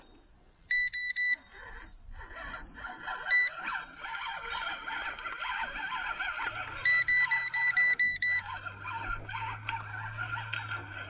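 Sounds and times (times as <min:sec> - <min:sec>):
electronic bite alarm beeps: 0:00.6 - 0:01.7, 0:03.3 - 0:03.6, 0:06.8 - 0:08.5.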